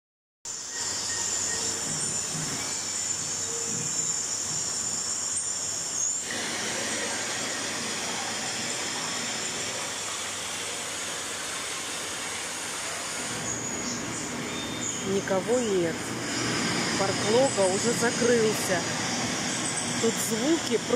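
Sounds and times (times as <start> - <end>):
high thin steady tones: 0.6 - 20.9
water rushing into ponds: 1.6 - 20.9.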